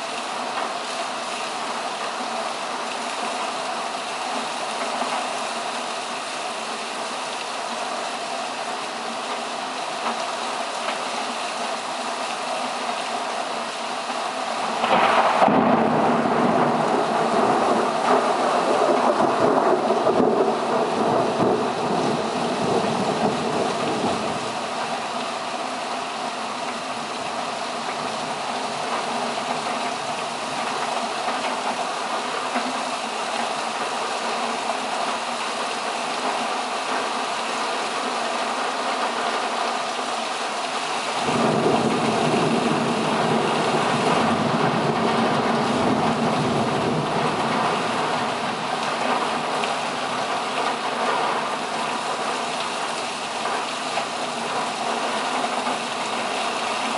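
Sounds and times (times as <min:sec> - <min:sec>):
heavy rain: 0:00.0 - 0:56.9.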